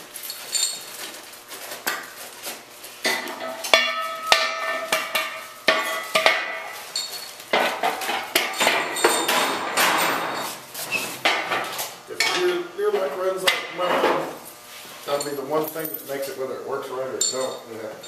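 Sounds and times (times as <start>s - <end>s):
steel tubing clanking and scraping: 3.0s - 12.6s
sharp ringing metal knocks: 3.1s - 10.5s.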